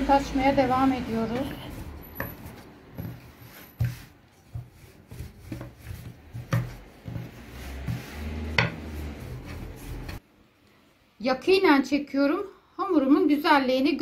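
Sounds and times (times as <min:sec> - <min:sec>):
rolling pin rumbling over dough: 0:00.4 - 0:10.2.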